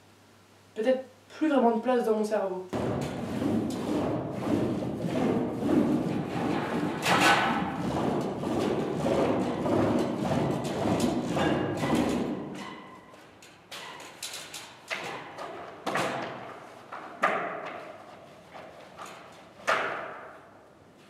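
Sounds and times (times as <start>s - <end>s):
sharp echoing knocks: 2.8s - 12.6s.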